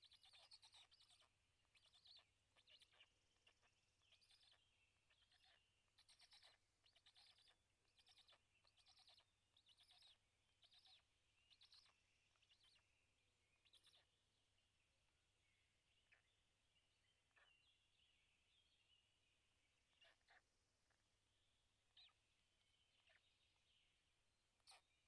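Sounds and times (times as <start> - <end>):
raspy bird calls: 0.0 - 14.2, 17.3 - 18.3, 19.9 - 21.0, 21.9 - 23.8, 24.6 - 25.0.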